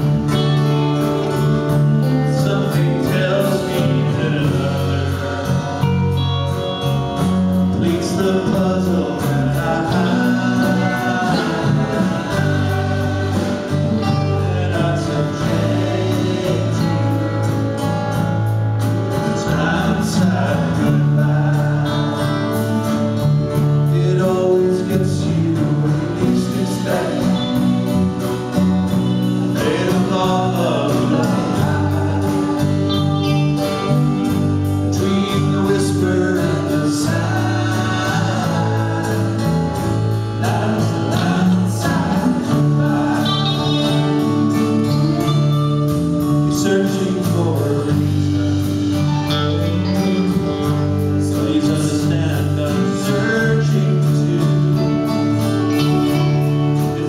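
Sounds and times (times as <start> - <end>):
person singing: 0.0 - 18.2, 19.0 - 57.0
drums: 0.0 - 57.0
electric and acoustic guitars: 0.0 - 57.0
keyboard: 0.0 - 57.0.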